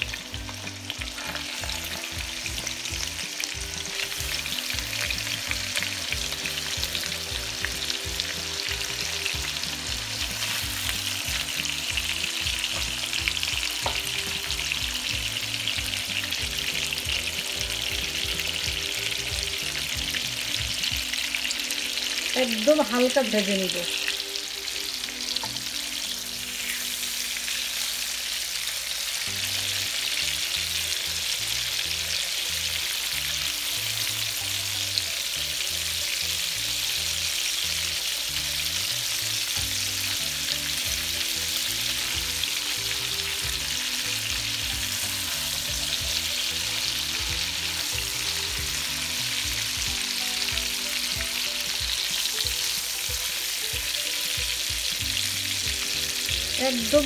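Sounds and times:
spatula turning fish: 0.0 - 21.4
fish sizzling in oil: 0.0 - 57.0.

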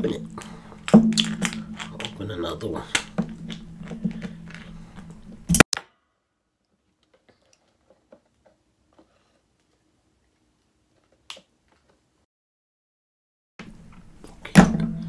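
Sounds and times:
crab shell cracking: 0.3 - 5.3.

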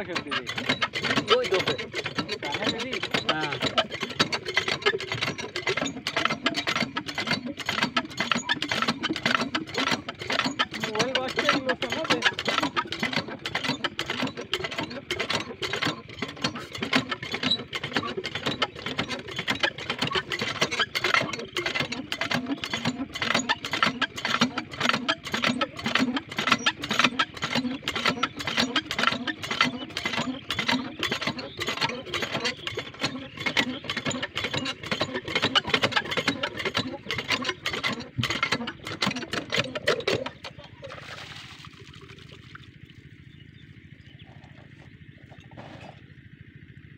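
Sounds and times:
water pump engine running: 0.0 - 46.9
water splashing: 40.7 - 43.0.

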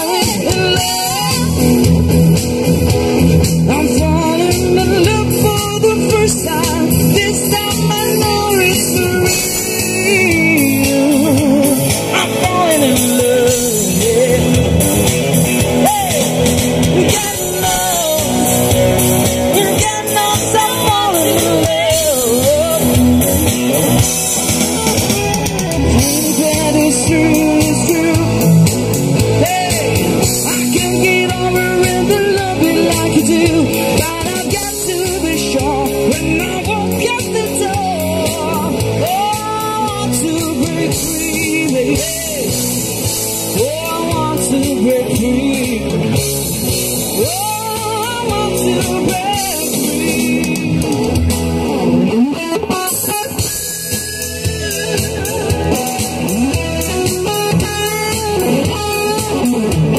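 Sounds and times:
person singing: 0.0 - 2.4, 3.4 - 46.3, 47.0 - 59.9
electric guitar playing: 0.0 - 59.9.

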